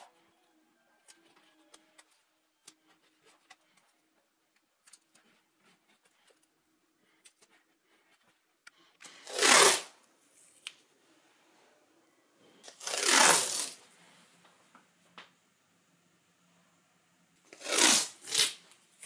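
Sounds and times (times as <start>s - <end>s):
tape ripping off roll: 9.1s - 10.0s, 12.7s - 13.8s, 17.5s - 18.8s.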